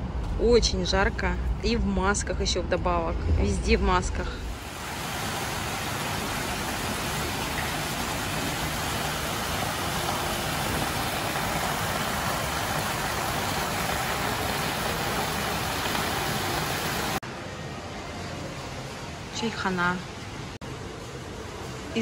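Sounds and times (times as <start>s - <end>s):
fountain water splashing into basin: 4.6s - 17.2s.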